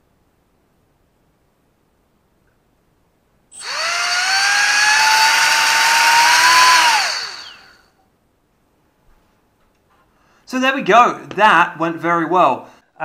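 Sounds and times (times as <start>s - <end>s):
small electric fan whine: 3.4s - 8.1s.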